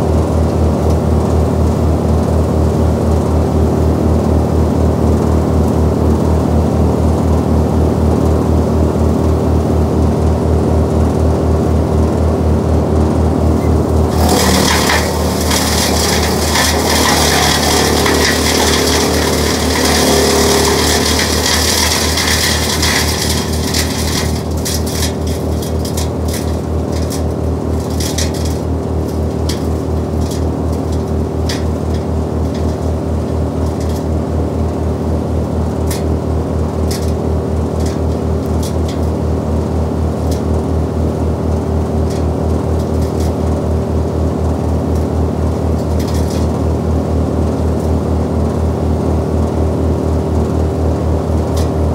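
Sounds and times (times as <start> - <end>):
wood chipper engine running: 0.0 - 51.9
wood crackling and grinding: 13.8 - 34.5
sharp cracks of wood: 14.1 - 28.6.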